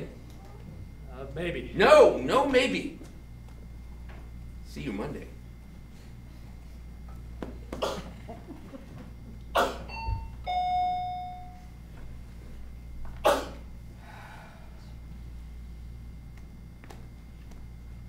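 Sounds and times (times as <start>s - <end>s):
two-note door chime: 9.9s - 11.7s.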